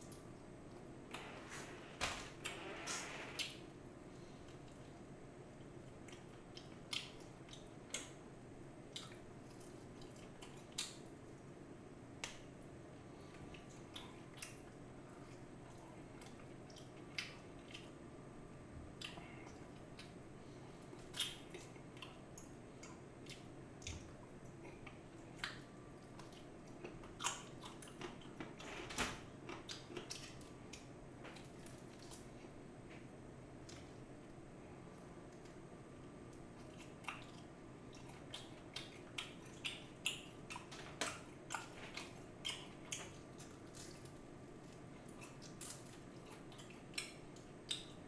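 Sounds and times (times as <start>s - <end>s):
soft chewing: 0.0s - 1.8s, 3.4s - 28.7s, 29.3s - 48.0s.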